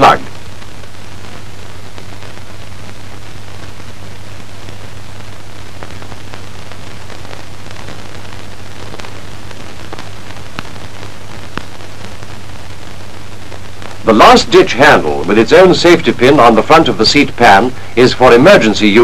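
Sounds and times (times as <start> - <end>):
film soundtrack hiss and hum: 0.0 - 19.0
faint crackle clicks: 0.3 - 14.0.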